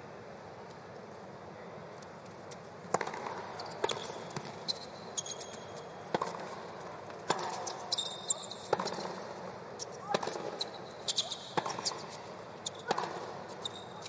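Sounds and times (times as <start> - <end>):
shoes squeaking on court: 2.4 - 14.0
racket hitting tennis ball: 2.8 - 4.6, 6.0 - 13.8
tennis ball bouncing: 2.8 - 14.0.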